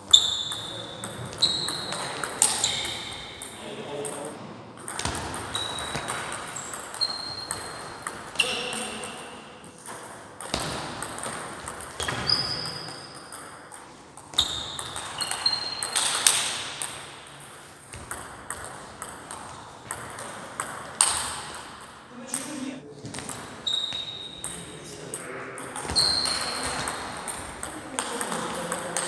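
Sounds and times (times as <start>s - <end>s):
shoe squeaks: 0.0s - 3.4s, 5.5s - 8.9s, 12.0s - 13.3s, 14.3s - 16.3s, 23.6s - 24.6s, 25.8s - 26.9s.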